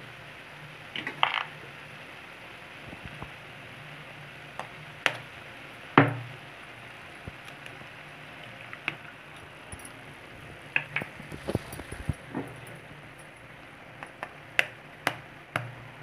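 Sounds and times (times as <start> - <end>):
egg knocking on metal pan: 6.0 - 6.4.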